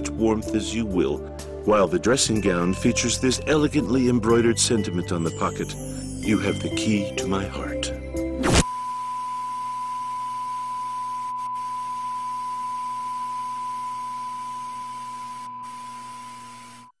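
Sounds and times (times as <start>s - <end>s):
electronic test tone: 8.4s - 16.9s.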